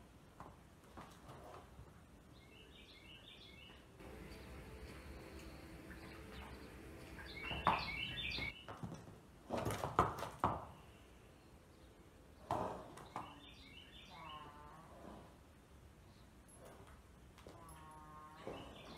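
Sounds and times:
small birds chirping: 2.3s - 8.8s, 10.7s - 14.5s.

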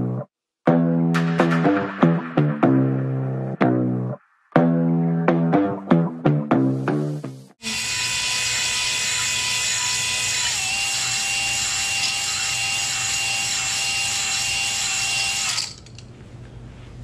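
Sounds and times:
power tool whining: 7.6s - 15.9s.

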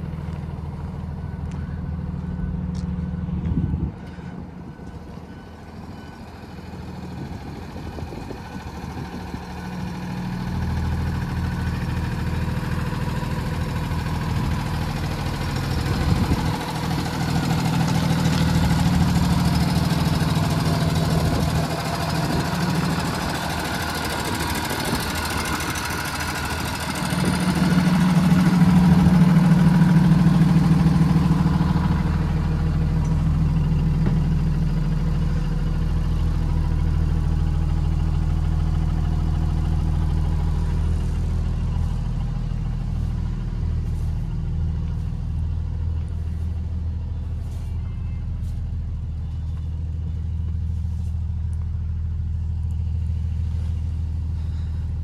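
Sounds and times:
bus engine idling: 0.0s - 55.0s.

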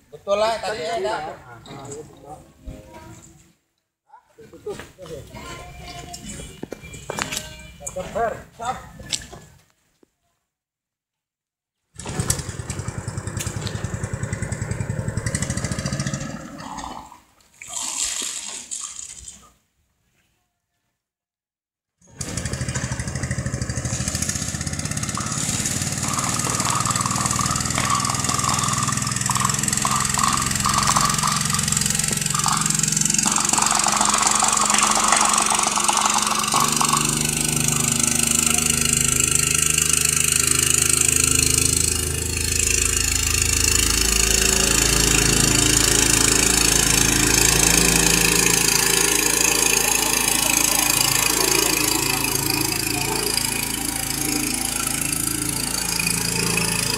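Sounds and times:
water pump engine running: 12.0s - 17.0s, 22.1s - 56.9s
water jet hissing from nozzle: 23.9s - 43.7s, 45.4s - 56.9s.

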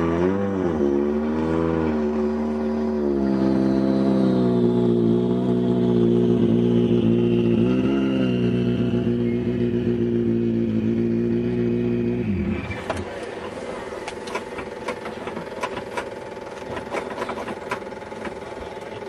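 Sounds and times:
car engine idling: 0.6s - 19.0s.

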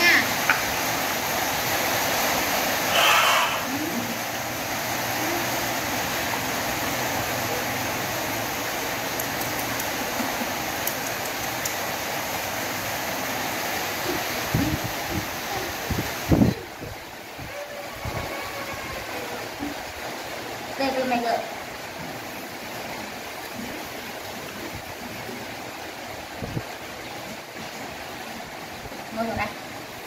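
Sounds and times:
steady rushing hiss: 0.0s - 30.0s
faint ticks: 9.2s - 10.0s.

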